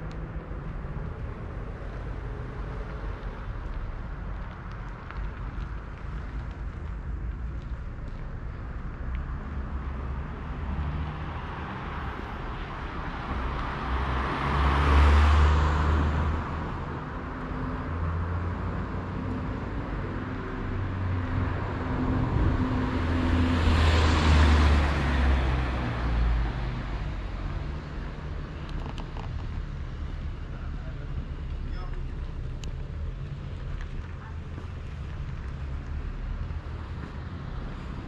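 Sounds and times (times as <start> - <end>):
cars driving past: 0.0 - 38.0.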